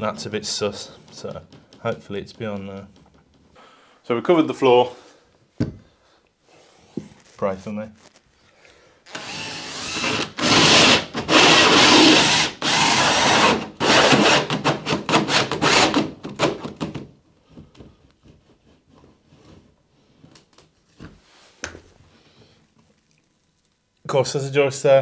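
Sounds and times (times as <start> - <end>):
power drill with hole saw: 9.1 - 16.1.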